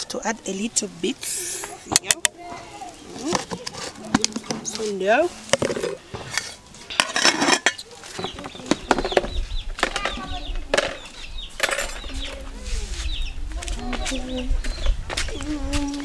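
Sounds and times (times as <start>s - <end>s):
pots clinking and clattering: 5.6s - 9.3s
chickens clucking: 7.3s - 16.0s.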